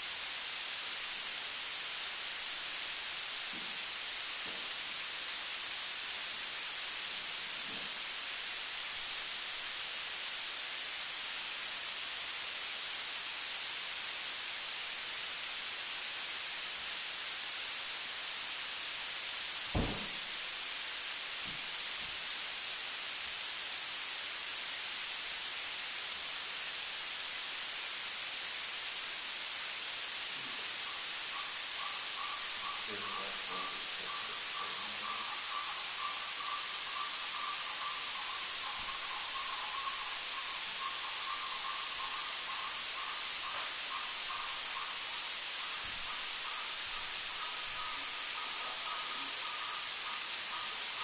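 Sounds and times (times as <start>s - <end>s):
static hiss: 0.0s - 51.0s
faint knocks: 19.8s - 20.2s
low thump: 19.8s - 20.3s.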